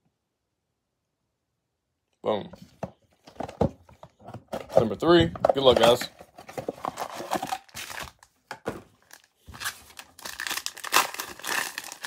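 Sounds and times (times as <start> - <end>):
card packs rustling in wrappers: 4.7 - 12.0
scissors cutting crinkly wrapper: 9.6 - 12.0.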